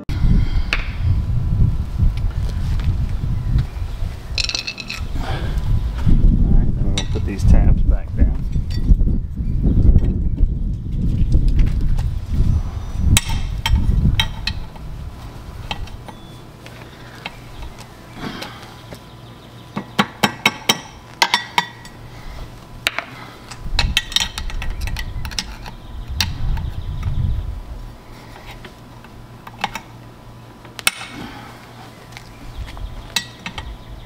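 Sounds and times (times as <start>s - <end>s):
low rumble: 0.0s - 16.1s.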